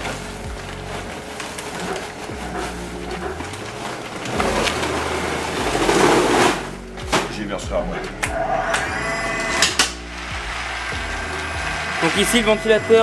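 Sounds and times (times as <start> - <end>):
nuts pouring into metal hopper: 3.6 - 6.7, 9.9 - 13.0.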